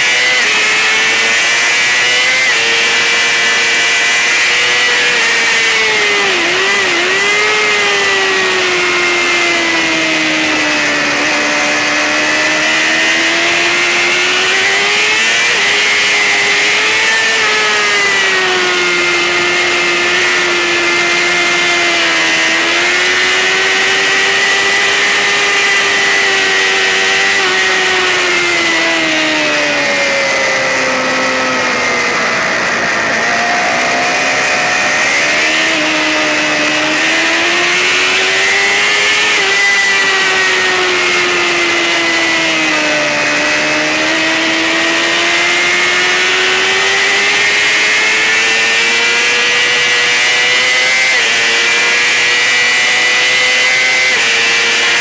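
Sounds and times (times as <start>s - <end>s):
sportbike engine revving: 0.0s - 55.0s.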